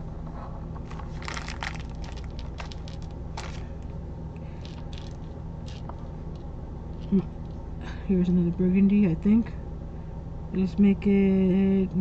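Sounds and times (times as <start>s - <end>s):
wax beads clicking and rattling: 0.9s - 3.9s, 4.6s - 7.6s.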